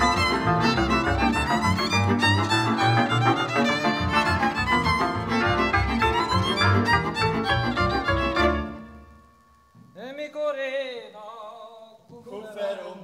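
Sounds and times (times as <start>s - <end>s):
fiddle playing dance tune: 0.0s - 9.0s.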